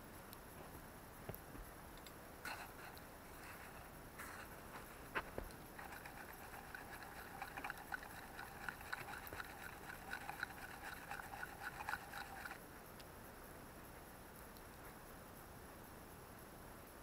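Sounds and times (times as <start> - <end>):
faint steady hiss: 0.0 - 17.0
ticking and crackling at wire trap: 5.5 - 12.6.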